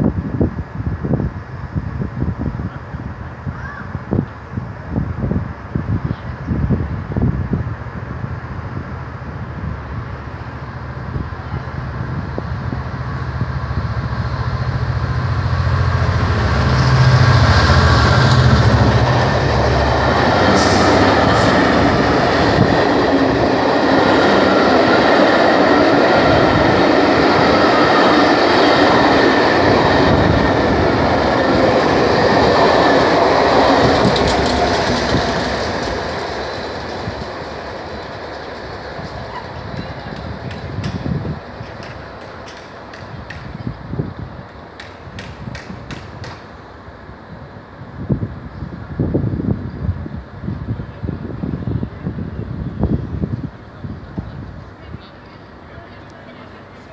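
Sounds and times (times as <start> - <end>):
diesel locomotive engine drone: 0.0 - 56.9
train wheels clickety-clack on rails: 11.0 - 46.8.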